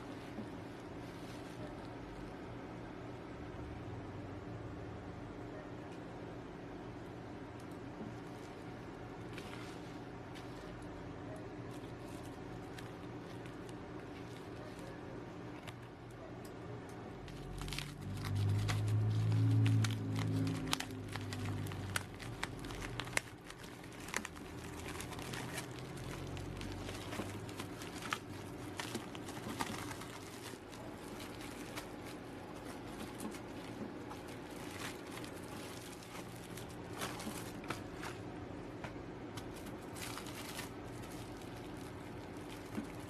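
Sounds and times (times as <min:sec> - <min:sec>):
plastic mailer crinkling: 0:11.6 - 0:15.9, 0:17.2 - 0:38.4, 0:39.4 - 0:43.0.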